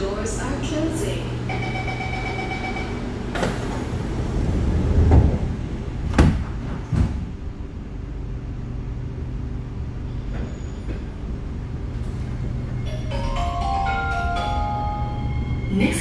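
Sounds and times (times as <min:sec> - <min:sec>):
train carriage running rumble: 0:00.0 - 0:16.0
train doors shutting with knocks: 0:01.6 - 0:07.6, 0:10.1 - 0:14.8.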